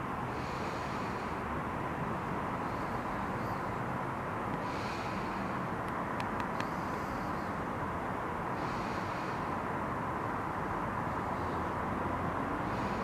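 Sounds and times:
distant city traffic hum: 0.0 - 13.0
faint sharp clicks: 5.8 - 6.8.

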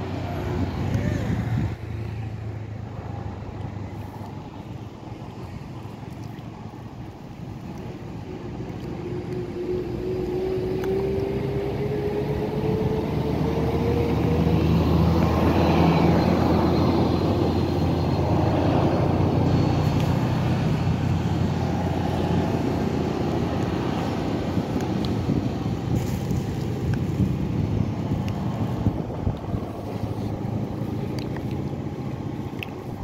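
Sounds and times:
vehicle engine whining: 8.0 - 33.0.

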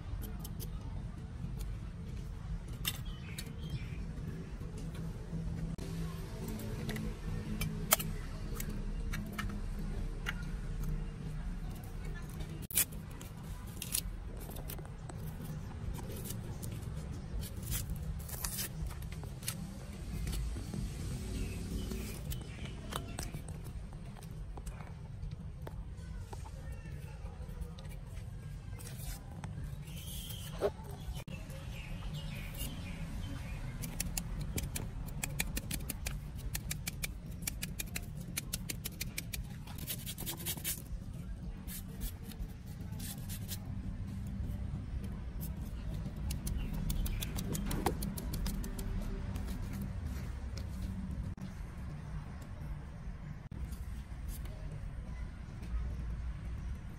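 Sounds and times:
knife scraping onion skin: 17.3 - 19.6, 33.8 - 40.9.

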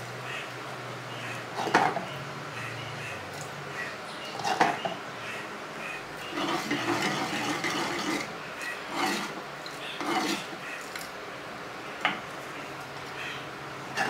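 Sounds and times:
wooden spoon scraping clay pot: 6.3 - 8.3, 8.9 - 9.4, 10.0 - 10.6.

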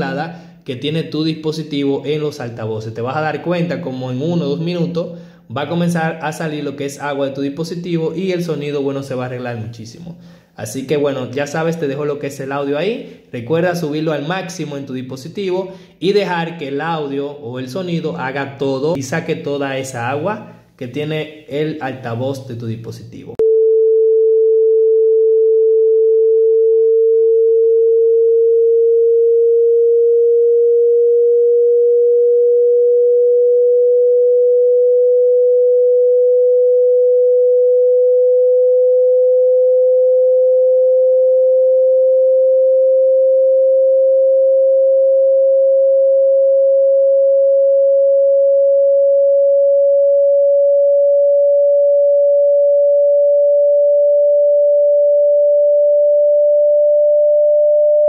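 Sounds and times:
rising sine tone: 23.4 - 58.0.

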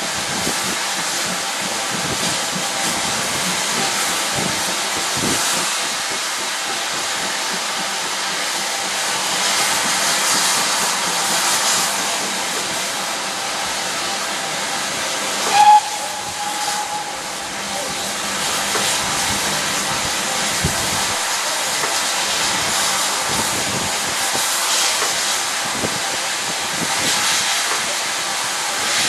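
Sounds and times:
steady steam hiss: 0.0 - 29.0
steam whistle toot: 15.4 - 18.0.

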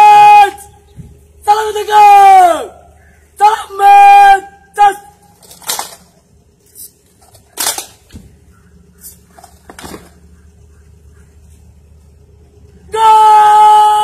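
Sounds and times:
person shouting command: 0.0 - 0.7, 1.4 - 5.3, 12.9 - 14.0
low hum: 0.0 - 14.0.

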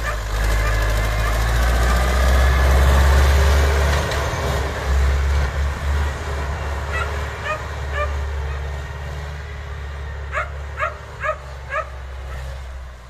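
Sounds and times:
tractor diesel engine rumbling: 0.0 - 13.0.

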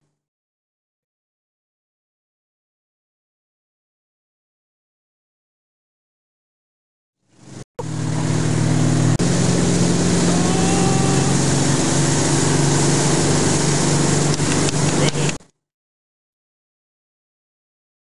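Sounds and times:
boat engine running: 7.3 - 15.4
rushing water: 7.3 - 15.4.

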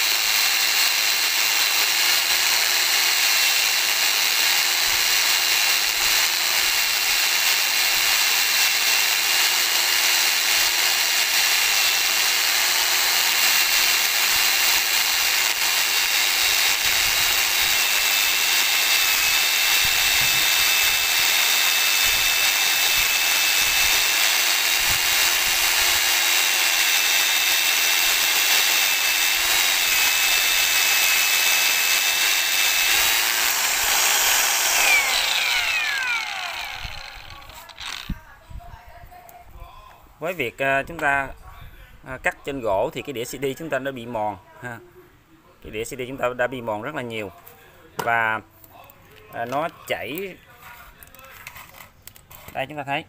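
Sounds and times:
angle grinder grinding wood: 0.0 - 38.3.

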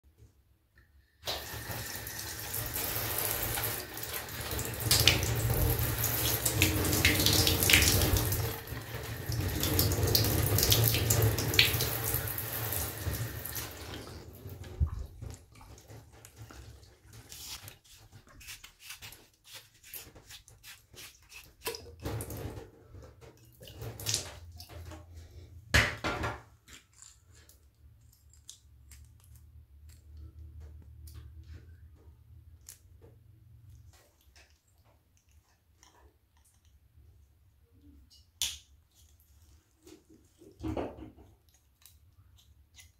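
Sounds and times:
water running from tap: 1.2 - 22.6, 23.4 - 25.0.

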